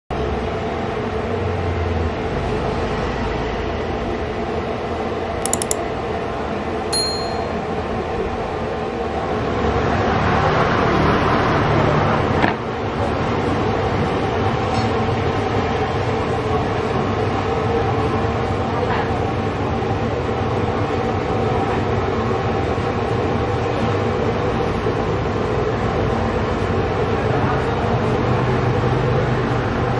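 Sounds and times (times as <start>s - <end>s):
light clicks: 5.4s - 5.8s
short ringing clink: 5.4s - 5.8s, 7.0s - 7.7s.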